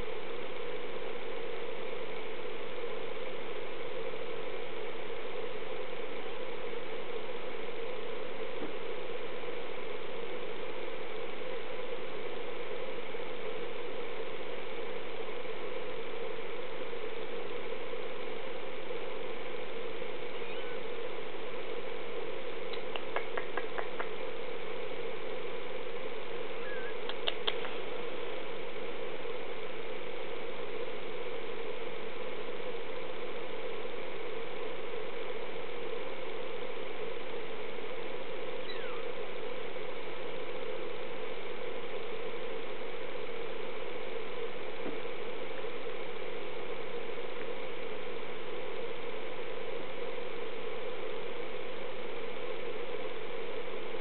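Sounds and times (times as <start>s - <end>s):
faint clicks: 27.0s - 27.8s.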